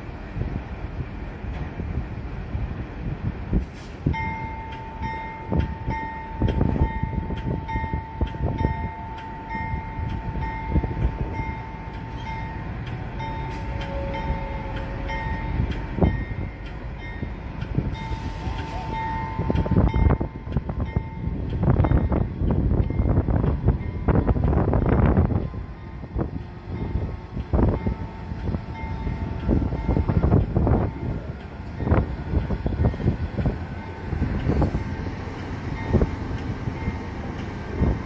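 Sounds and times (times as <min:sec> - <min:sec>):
diesel locomotive rumbling: 0:00.0 - 0:38.0.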